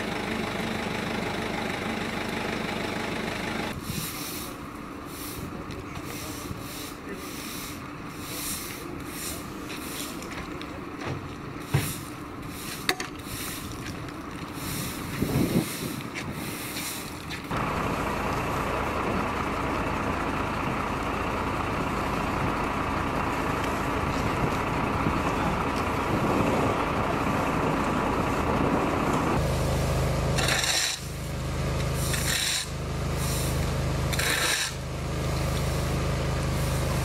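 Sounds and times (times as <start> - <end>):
vehicle engines idling: 0.0 - 37.0
brooms sweeping debris on asphalt: 3.7 - 17.8, 29.4 - 37.0.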